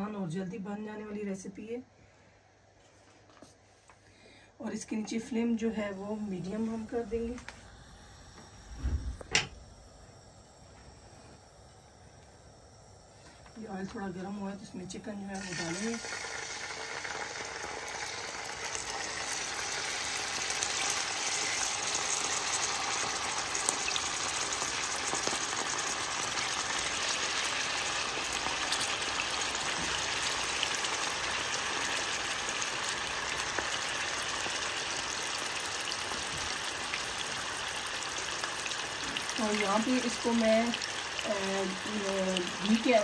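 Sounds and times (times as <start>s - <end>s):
chicken sizzling in oil: 15.3s - 43.0s.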